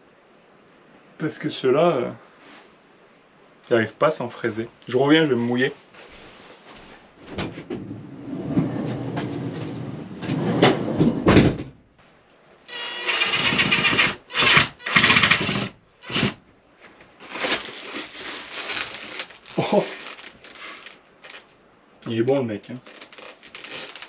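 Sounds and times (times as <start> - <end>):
drill boring into wood: 12.7 - 16.4.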